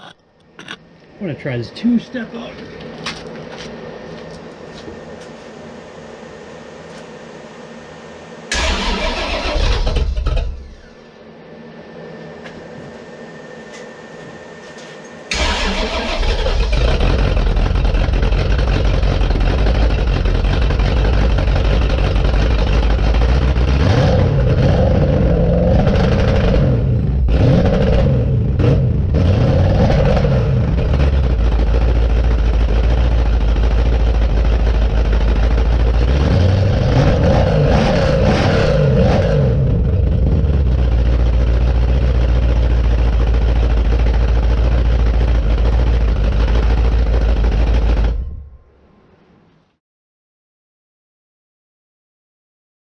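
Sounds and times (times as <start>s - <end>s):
car engine starting and revving: 8.5s - 11.0s, 15.3s - 48.5s.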